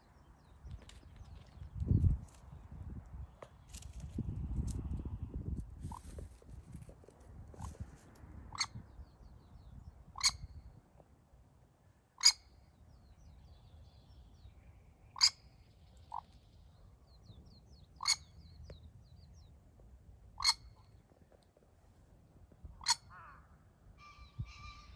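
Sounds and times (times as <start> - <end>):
pheasant hen calling: 10.1 - 10.6, 12.2 - 12.6, 15.0 - 16.3, 17.8 - 18.6, 20.3 - 21.0, 22.7 - 24.9.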